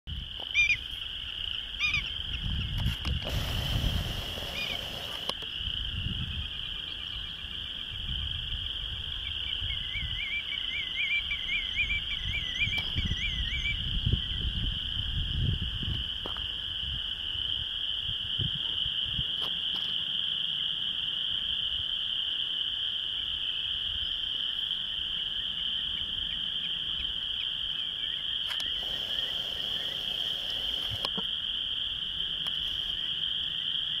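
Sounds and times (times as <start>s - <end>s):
wind rumble on microphone: 0.1s - 0.4s, 1.9s - 19.6s, 28.6s - 31.2s
frogs calling: 0.1s - 34.0s
bird wavering calls: 0.5s - 0.8s, 1.8s - 2.2s, 4.2s - 5.3s.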